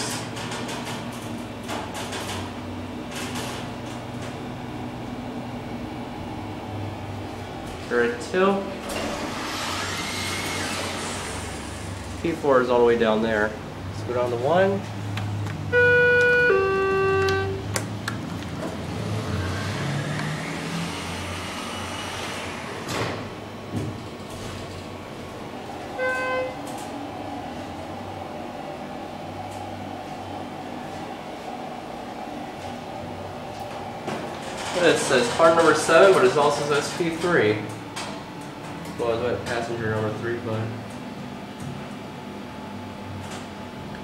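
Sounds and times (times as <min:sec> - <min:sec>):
elevator clicks and rattles: 0:00.0 - 0:04.6, 0:32.5 - 0:40.1
elevator low hum: 0:00.0 - 0:44.0.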